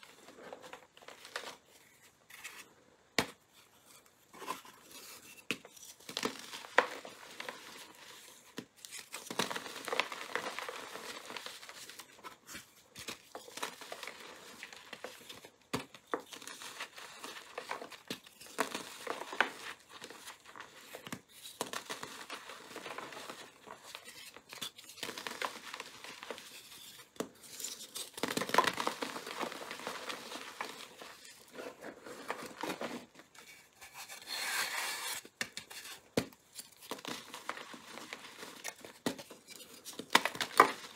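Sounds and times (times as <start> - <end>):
chalk crunching by hand: 33.8 - 35.2.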